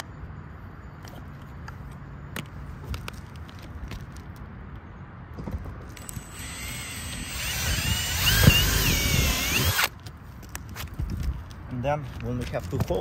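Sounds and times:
cordless drill whining: 6.0s - 9.9s.

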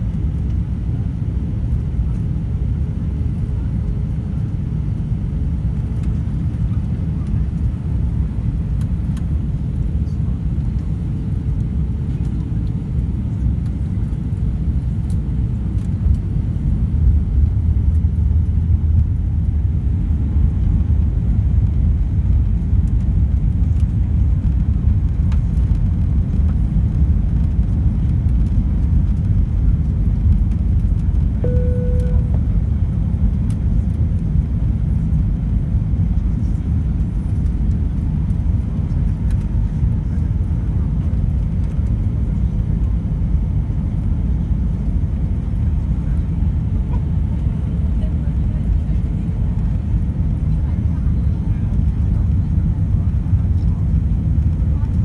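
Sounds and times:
aircraft cabin engine rumble: 0.0s - 55.0s
single tone: 31.4s - 32.5s.

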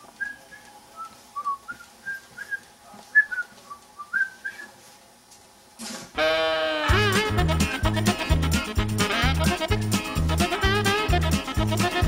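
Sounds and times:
person whistling a tune: 7.7s - 8.2s.

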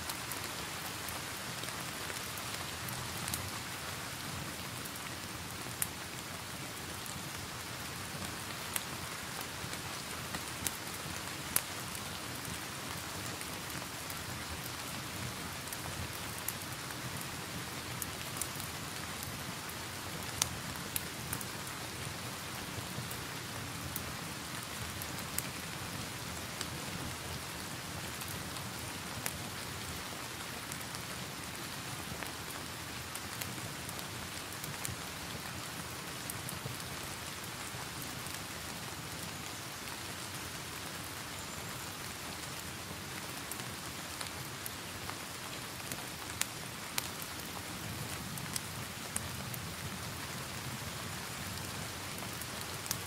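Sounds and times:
fireplace fire crackling: 0.0s - 53.0s
steady rain falling: 0.0s - 53.0s
fire popping: 51.4s - 53.0s.

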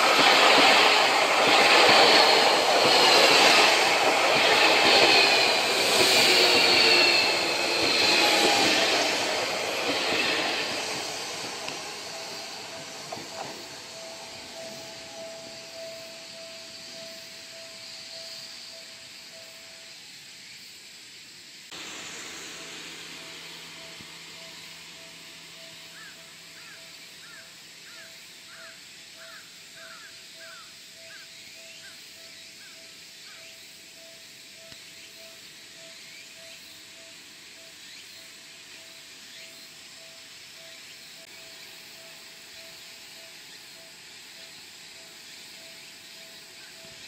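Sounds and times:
level crossing warning bell: 0.0s - 19.9s, 22.4s - 26.6s.

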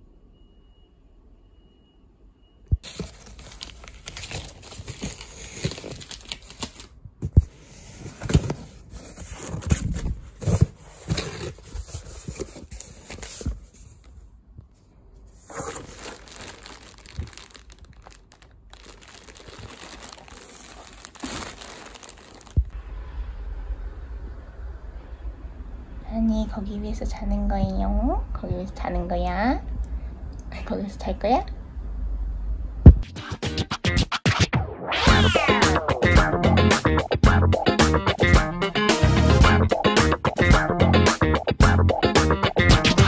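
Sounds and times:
plastic bags crinkling: 2.8s - 7.0s, 15.4s - 22.8s.

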